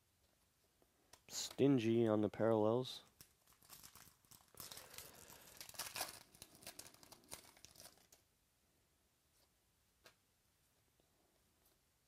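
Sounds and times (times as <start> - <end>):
foil pack tearing and crinkling: 3.2 - 8.2.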